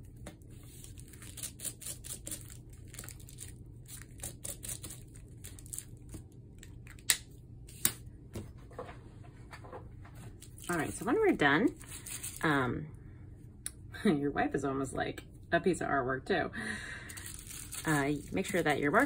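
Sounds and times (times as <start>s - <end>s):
bubble wrap crinkling: 0.4s - 7.1s, 10.4s - 11.1s, 11.7s - 12.4s, 17.1s - 19.0s.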